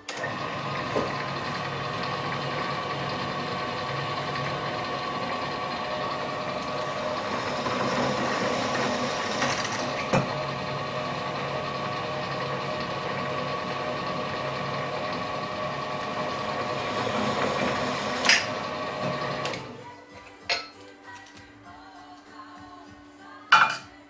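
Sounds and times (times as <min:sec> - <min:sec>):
drill press motor humming: 0:00.0 - 0:19.8.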